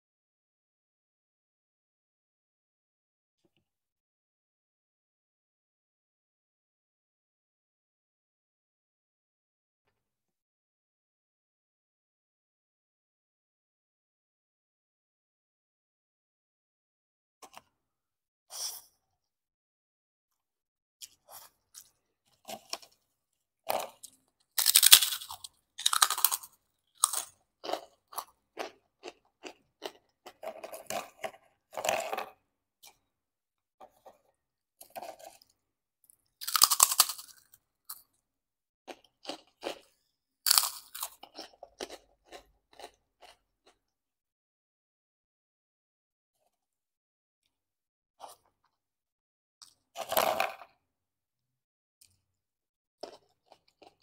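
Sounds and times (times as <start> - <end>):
crunching crackers: 23.7 - 33.0, 36.4 - 38.2, 38.9 - 39.9, 40.5 - 43.8.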